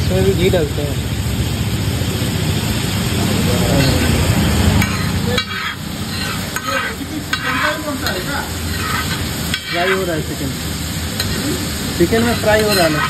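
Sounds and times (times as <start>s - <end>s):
food sizzling in a pan: 0.0s - 13.0s
metal ladle scraping a pan: 3.7s - 10.2s, 12.2s - 13.0s.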